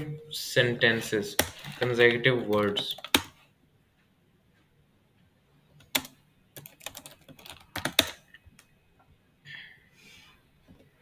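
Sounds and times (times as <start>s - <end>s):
computer keyboard typing: 1.3s - 3.4s, 5.8s - 8.7s.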